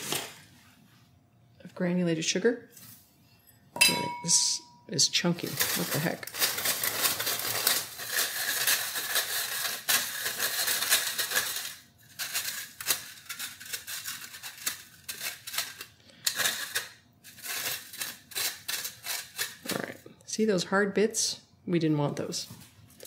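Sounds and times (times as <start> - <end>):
sugar rasping through sifter mesh: 4.3 - 19.7.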